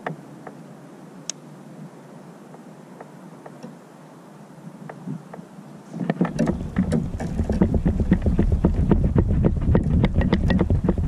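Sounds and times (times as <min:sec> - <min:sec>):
low rumble: 0:06.3 - 0:11.0.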